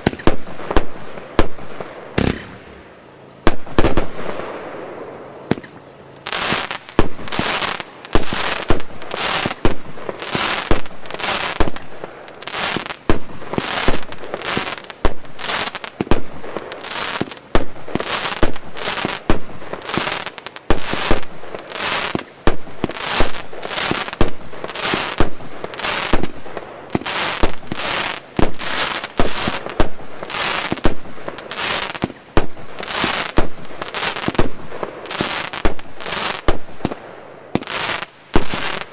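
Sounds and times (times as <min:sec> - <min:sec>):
firework shots banging and hissing: 0:00.0 - 0:38.9.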